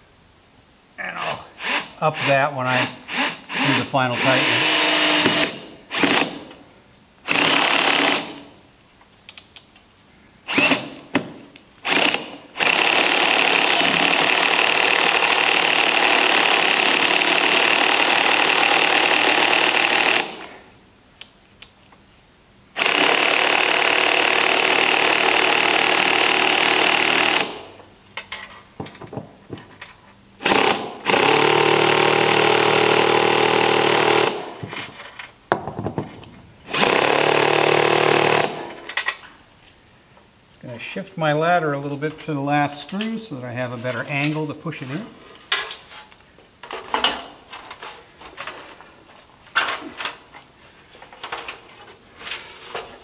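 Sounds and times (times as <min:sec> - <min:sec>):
cordless drill driving screws: 0:01.6 - 0:06.5, 0:07.3 - 0:08.5, 0:10.5 - 0:11.0, 0:11.8 - 0:20.5, 0:22.8 - 0:27.6, 0:30.4 - 0:34.6, 0:36.7 - 0:38.7.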